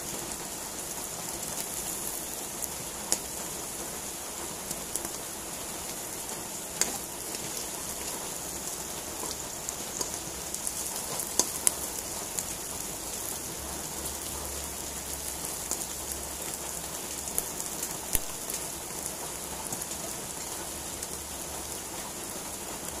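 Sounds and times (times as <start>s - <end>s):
vegetables frying in oil: 0.0s - 23.0s.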